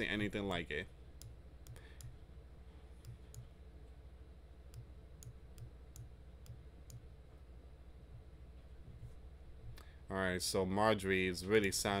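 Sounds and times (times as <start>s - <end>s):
steady low hum: 0.0s - 12.0s
computer mouse clicking: 1.2s - 2.2s, 3.0s - 3.5s, 4.7s - 7.1s.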